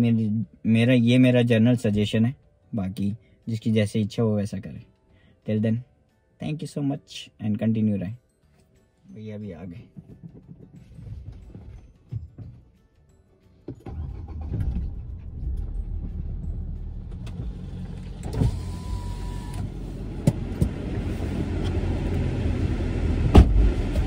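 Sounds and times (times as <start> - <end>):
car engine idling: 13.9 - 24.0
car door shutting: 17.1 - 21.8, 23.2 - 24.0.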